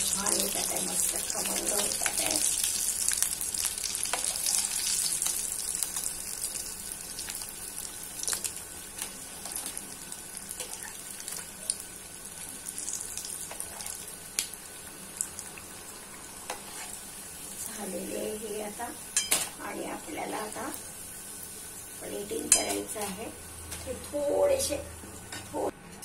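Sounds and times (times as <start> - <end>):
food sizzling in hot oil: 0.0 - 25.6.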